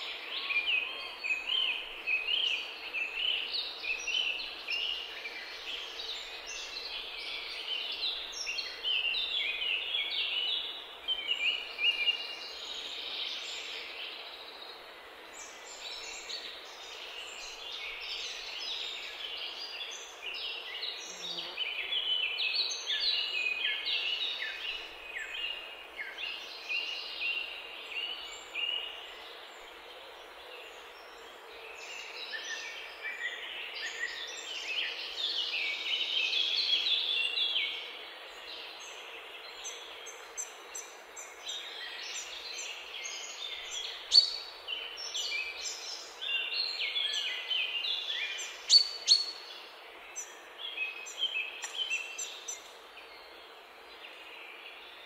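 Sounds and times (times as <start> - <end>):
steady background hiss: 0.0 - 55.0
birds chirping: 38.6 - 55.0.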